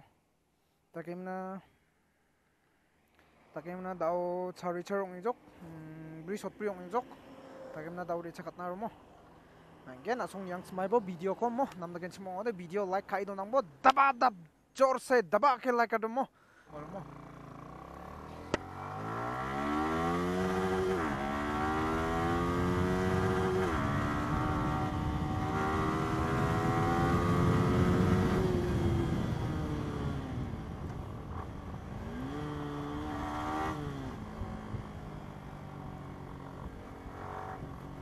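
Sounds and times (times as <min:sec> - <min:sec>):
motorcycle engine accelerating: 0:16.8 - 0:38.0.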